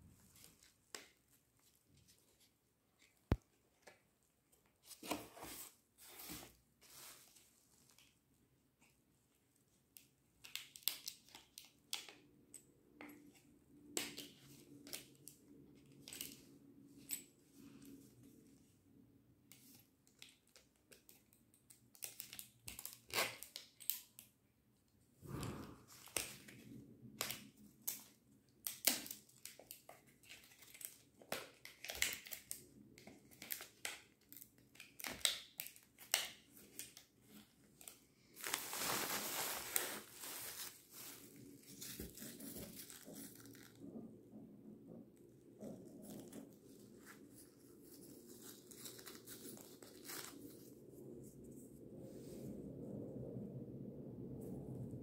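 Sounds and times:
plastic packaging crackling: 0:38.3 - 0:43.8.

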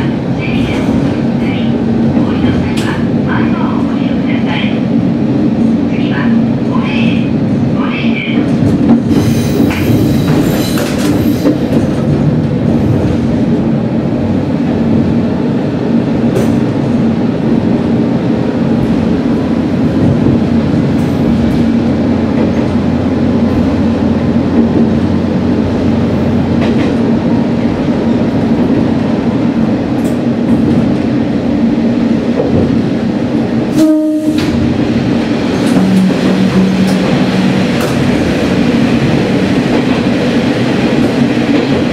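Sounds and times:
train wheels clacking on rails: 0:08.3 - 0:13.7, 0:16.2 - 0:17.0, 0:18.7 - 0:27.8, 0:33.7 - 0:41.9.

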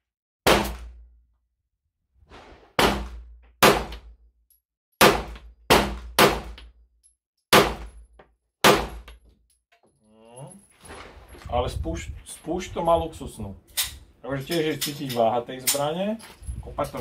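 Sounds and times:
pistol shots: 0:00.5 - 0:01.0, 0:02.8 - 0:04.1, 0:05.0 - 0:06.6, 0:07.5 - 0:08.0, 0:08.6 - 0:09.1.

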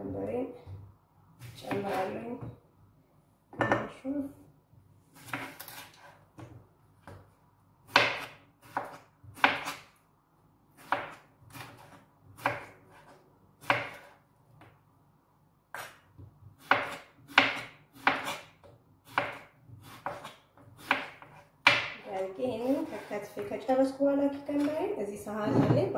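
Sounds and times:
knife slicing on cutting board: 0:05.2 - 0:06.2.

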